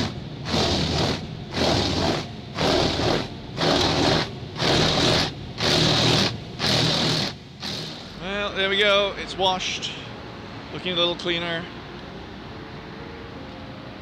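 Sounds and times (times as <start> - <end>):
water jets pounding on car: 0.0 - 8.1
steady low hum: 0.0 - 14.0.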